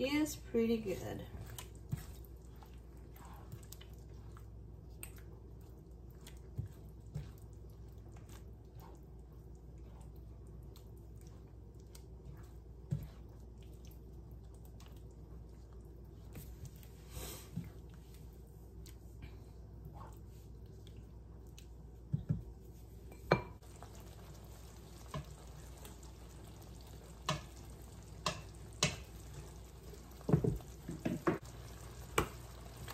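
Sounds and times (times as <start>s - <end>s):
spatula stirring thick sauce: 0.7s - 17.0s, 23.6s - 32.9s.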